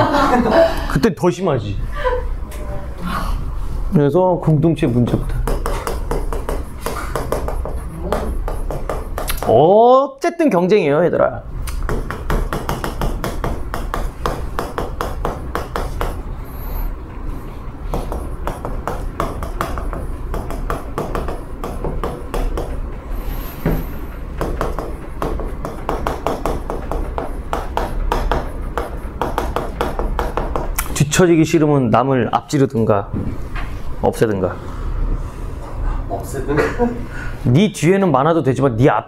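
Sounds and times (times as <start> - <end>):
chalk tapping and scratching: 4.9 - 9.6, 11.8 - 16.9, 17.9 - 31.0.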